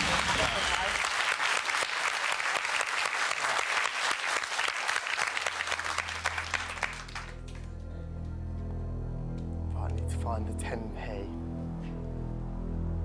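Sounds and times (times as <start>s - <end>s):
studio audience applauding: 0.0s - 7.8s
low steady musical tone: 5.6s - 13.0s.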